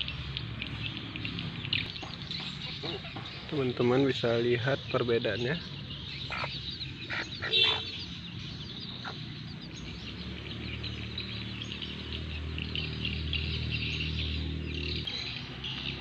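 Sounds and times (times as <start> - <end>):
chicks peeping: 0.7 - 13.4
hen clucking: 2.5 - 3.6, 6.2 - 8.0, 8.9 - 9.4.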